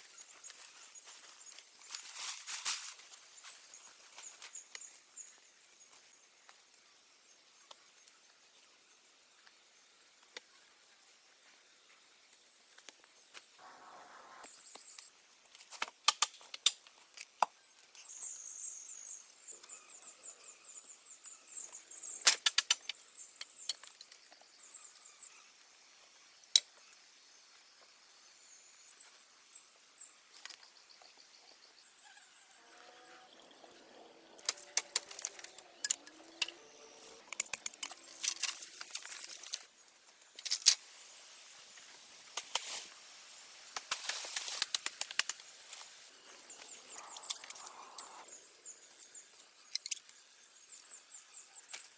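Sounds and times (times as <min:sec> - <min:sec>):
leaves rustling: 0:00.0 - 0:04.8, 0:34.3 - 0:49.0
bamboo poles knocking and creaking: 0:34.4 - 0:39.7.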